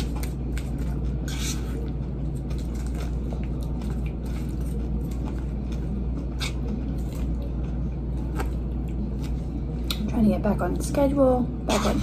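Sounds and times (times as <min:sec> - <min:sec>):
chewing salad: 0:00.0 - 0:10.1
steady low hum: 0:00.0 - 0:12.0
plastic fork scraping bowl: 0:01.2 - 0:01.8.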